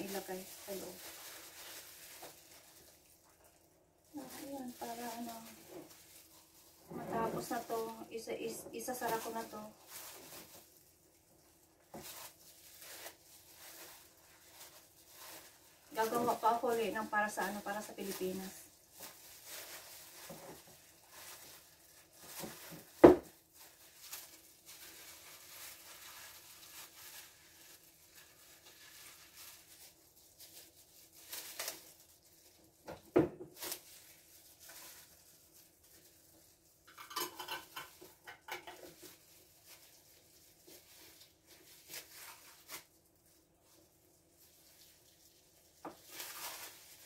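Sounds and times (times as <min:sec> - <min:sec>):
glass jars clinking: 0:36.9 - 0:38.7.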